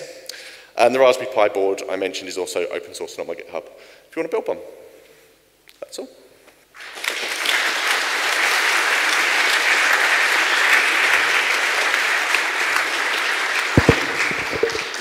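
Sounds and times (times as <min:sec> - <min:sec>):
large audience applauding: 0:06.8 - 0:15.0
sharp knock: 0:13.8 - 0:14.9.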